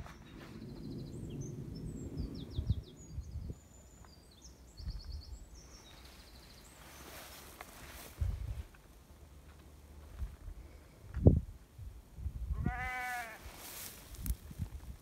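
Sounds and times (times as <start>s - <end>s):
songbirds chirping and trilling: 0.0s - 9.2s.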